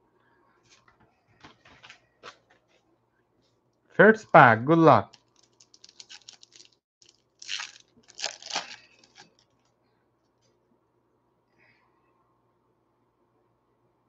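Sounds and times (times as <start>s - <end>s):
foil wrapper ripping: 5.1s - 9.5s
foil wrapper crinkling: 5.1s - 9.7s.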